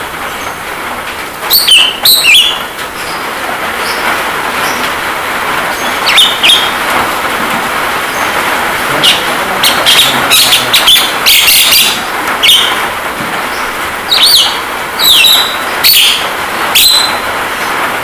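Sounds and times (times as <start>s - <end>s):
rain hiss: 0.0s - 18.0s
bird whistles: 1.5s - 2.6s, 6.0s - 6.7s, 9.8s - 12.7s, 14.1s - 16.2s, 16.8s - 17.2s
bird harsh chirps: 1.5s - 3.2s, 5.7s - 6.8s, 8.0s - 12.8s, 13.5s - 17.3s.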